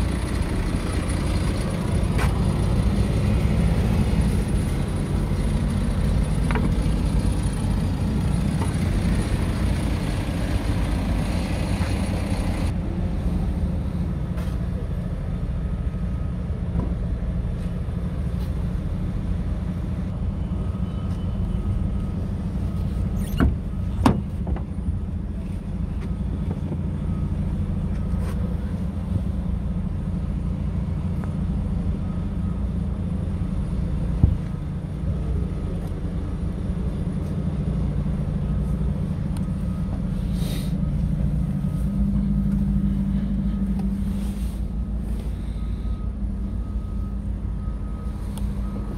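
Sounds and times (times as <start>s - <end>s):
diesel truck engine idling: 0.0s - 48.9s.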